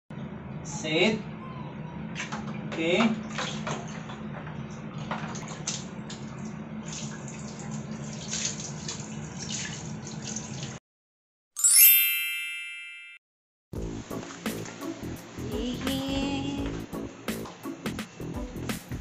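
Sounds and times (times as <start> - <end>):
water splashing: 2.2 - 10.8
bright chime: 11.6 - 13.2.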